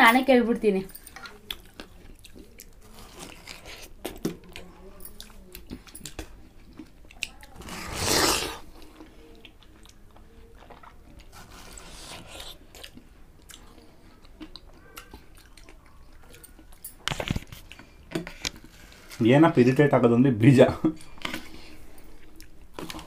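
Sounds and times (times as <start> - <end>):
chewing watermelon: 1.2 - 19.2.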